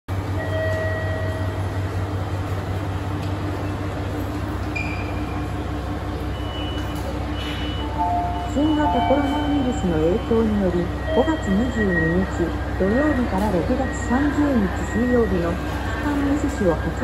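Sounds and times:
diesel train idling: 0.1 - 17.0.

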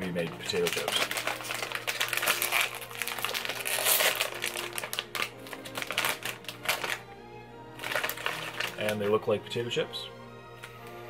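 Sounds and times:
plastic chip bag crinkling: 0.0 - 7.1, 7.7 - 9.4.

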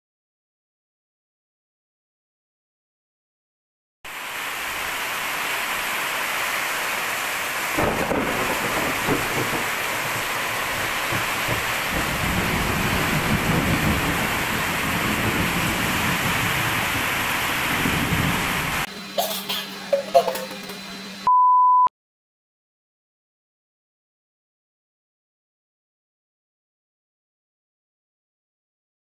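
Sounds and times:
torrential rain on pavement: 4.1 - 18.9.

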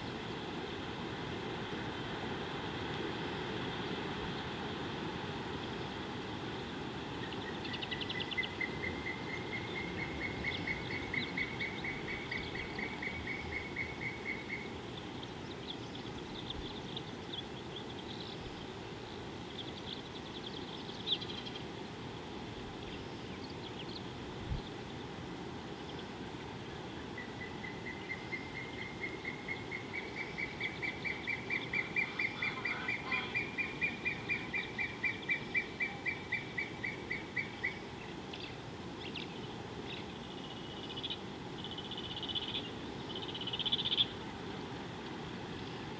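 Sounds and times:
birds chirping: 6.6 - 21.7, 27.0 - 44.2.

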